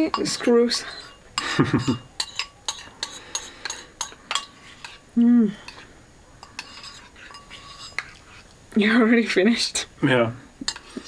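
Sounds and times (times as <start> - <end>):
cutlery clinking on dishes: 0.0 - 5.0, 5.7 - 8.3, 10.6 - 11.0.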